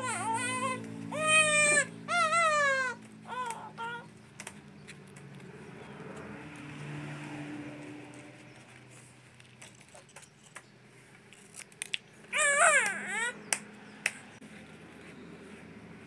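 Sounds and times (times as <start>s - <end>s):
animal high-pitched cries: 0.0s - 4.1s, 12.3s - 13.5s.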